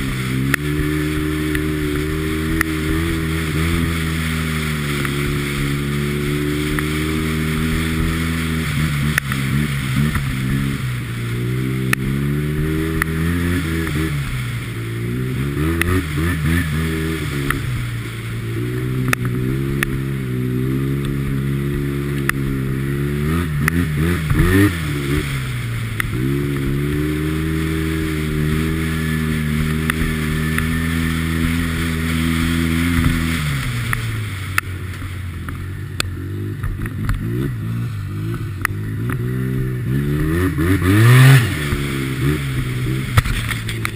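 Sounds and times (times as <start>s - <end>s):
snowmobile engine running: 0.0s - 43.9s.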